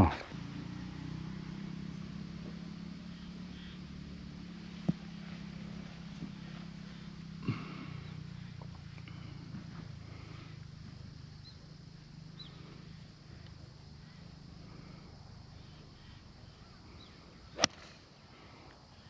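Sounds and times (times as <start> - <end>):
faint bird chirps: 0.0 - 17.9
low steady hum: 0.0 - 19.0
golf club striking ball: 17.6 - 18.0.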